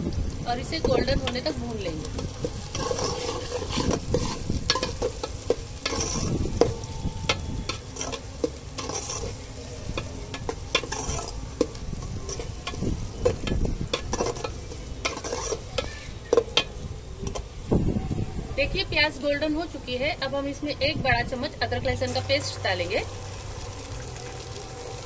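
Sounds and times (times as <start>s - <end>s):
onions sizzling in hot oil: 0.0s - 25.0s
spoon knocking and scraping pot: 0.8s - 17.4s.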